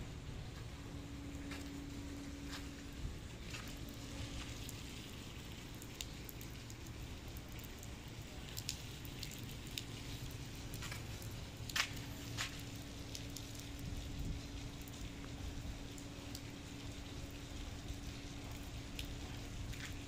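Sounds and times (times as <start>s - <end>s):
steady low rumble: 0.0s - 8.6s.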